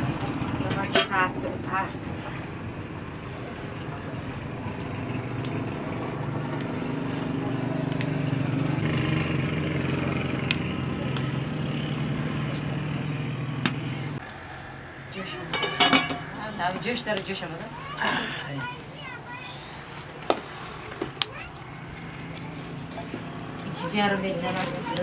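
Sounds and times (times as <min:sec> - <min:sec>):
pot boiling with low rumble: 0:00.0 - 0:13.6.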